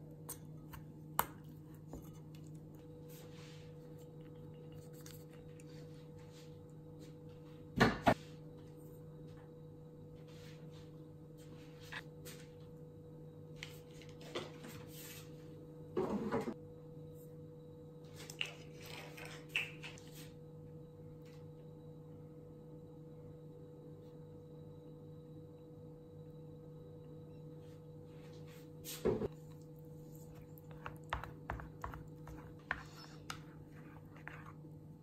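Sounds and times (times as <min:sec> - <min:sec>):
steady low hum: 0:20.2 - 0:35.0.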